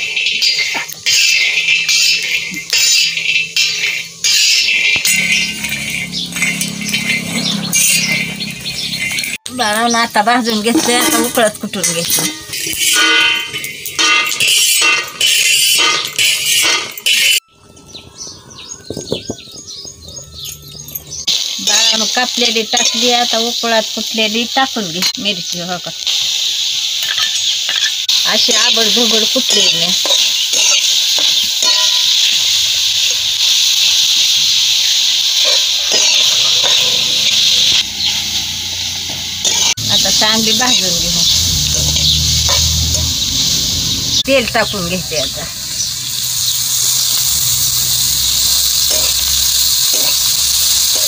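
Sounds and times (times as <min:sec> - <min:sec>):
peanuts scraping on iron griddle: 0:00.0 - 0:09.3, 0:10.1 - 0:17.4, 0:27.0 - 0:37.5, 0:46.1 - 0:51.0
chillies sizzling in a pan: 0:00.0 - 0:18.0, 0:18.6 - 0:51.0
birds chirping: 0:00.0 - 0:25.6, 0:27.2 - 0:51.0
spatula scraping a pan: 0:35.4 - 0:36.9, 0:48.8 - 0:51.0
wood fire crackling: 0:39.8 - 0:51.0.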